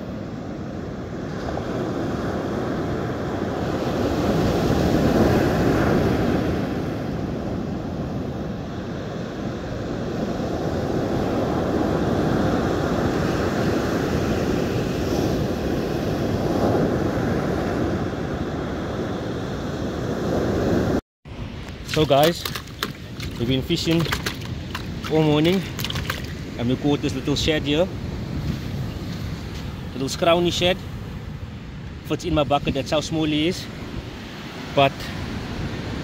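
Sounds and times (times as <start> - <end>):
surf breaking on beach: 21.8 - 27.2.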